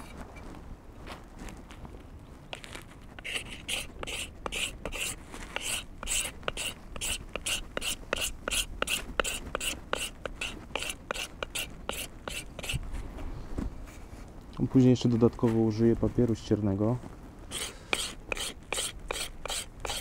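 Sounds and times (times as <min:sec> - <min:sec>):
knife scraping wooden handle: 0:03.2 - 0:12.8, 0:17.5 - 0:20.0.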